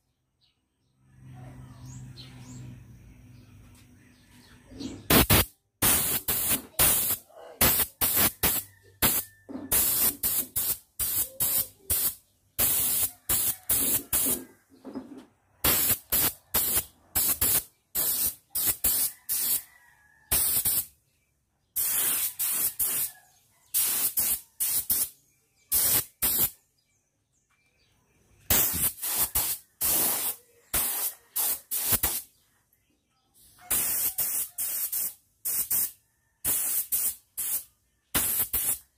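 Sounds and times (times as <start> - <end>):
spray paint hissing in bursts: 5.1 - 14.5, 15.6 - 19.7, 20.3 - 20.9, 21.8 - 23.1, 23.7 - 26.6, 28.5 - 32.3, 33.7 - 38.9.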